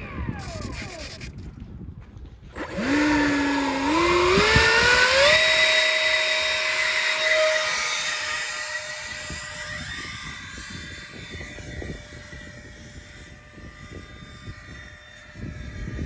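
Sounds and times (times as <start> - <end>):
electric ducted fan whine: 2.5 - 16.0.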